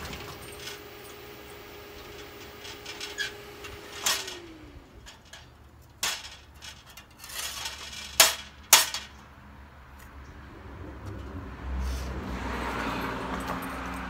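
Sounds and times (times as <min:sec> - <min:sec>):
metal scraping: 0:00.0 - 0:09.2
steel pieces clanking: 0:00.0 - 0:09.2.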